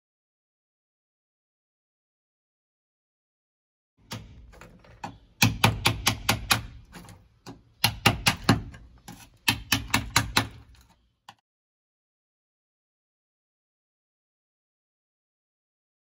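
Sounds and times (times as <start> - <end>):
hand tool chipping asphalt off metal: 4.0 - 11.1.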